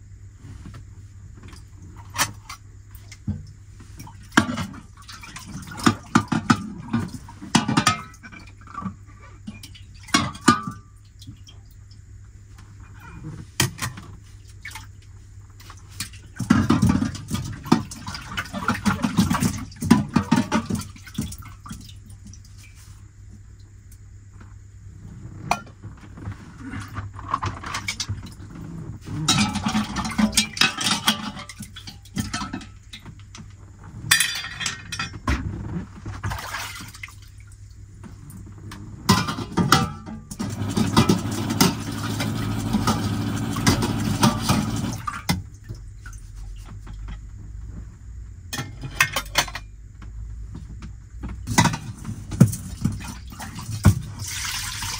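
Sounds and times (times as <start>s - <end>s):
steady low hum: 0.0s - 54.3s
pots and pans clinking: 4.3s - 10.9s, 16.4s - 21.4s, 29.1s - 33.2s, 34.1s - 35.5s, 39.1s - 45.4s, 48.5s - 49.7s, 51.4s - 54.2s
water splashing: 36.2s - 37.7s, 52.8s - 54.9s.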